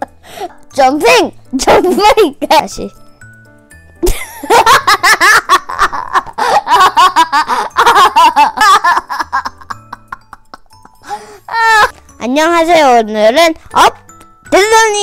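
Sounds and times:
boy laughing hard: 0:04.0 - 0:11.9.

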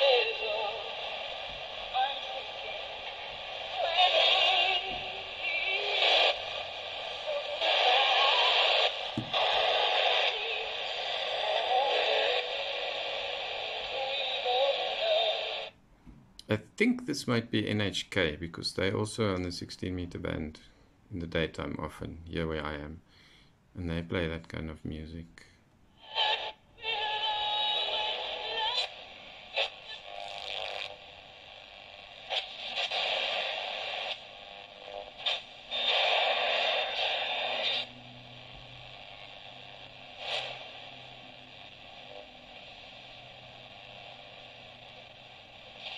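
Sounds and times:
radio static: 0:00.0 - 0:15.7, 0:26.0 - 0:45.9
tinny radio music: 0:00.0 - 0:15.8, 0:26.0 - 0:45.9.

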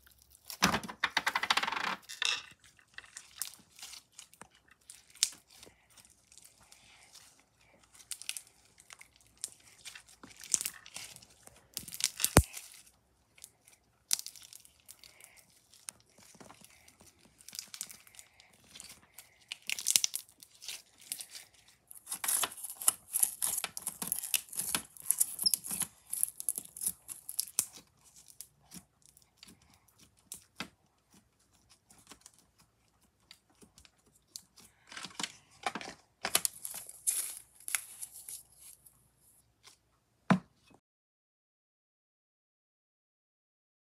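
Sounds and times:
beaded slime crackling and popping: 0:02.8 - 0:32.6, 0:36.3 - 0:38.4.

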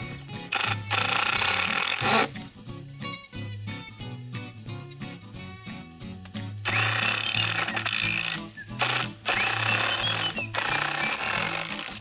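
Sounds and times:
background music: 0:00.0 - 0:12.0
cordless driver whining: 0:00.5 - 0:02.3, 0:06.7 - 0:12.0.

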